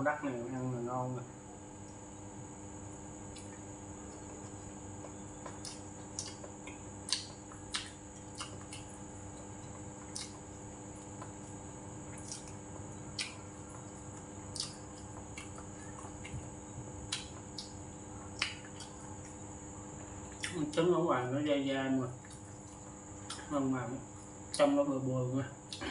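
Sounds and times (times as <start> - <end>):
faint background hum: 0.0 - 25.9
wet mouth smacks while chewing: 3.3 - 11.4, 12.1 - 16.5, 17.1 - 19.4, 20.3 - 20.6, 22.2 - 23.5.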